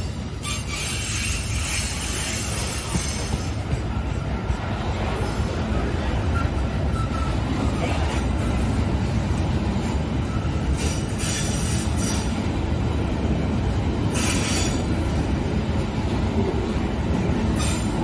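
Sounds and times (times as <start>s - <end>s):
freight train wheels rumbling: 0.0s - 18.0s
wheel screeches: 0.4s - 3.6s, 14.1s - 14.9s.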